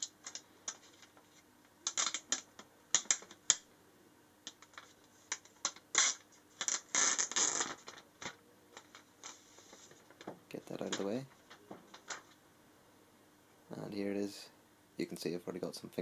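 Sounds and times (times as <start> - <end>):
plastic film crinkling: 0.0 - 3.6, 4.5 - 12.4.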